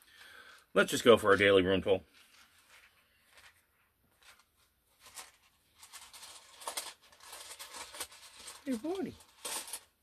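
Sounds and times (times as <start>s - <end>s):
cloth pouch rustling: 2.1s - 9.9s.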